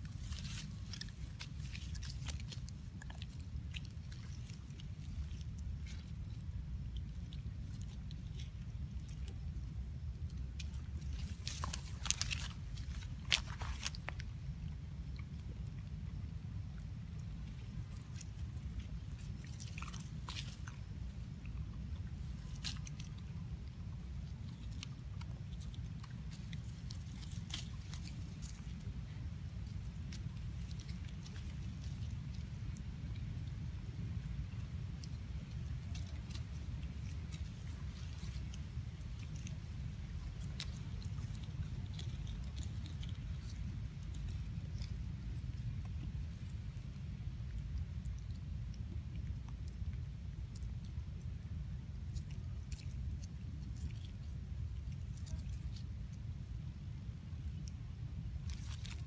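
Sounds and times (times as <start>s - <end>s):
monkeys rustling in dry leaves: 0.0s - 3.4s
small clicks and crackles: 0.0s - 16.0s, 16.6s - 56.6s, 57.4s - 59.0s
low rumble: 0.0s - 59.0s.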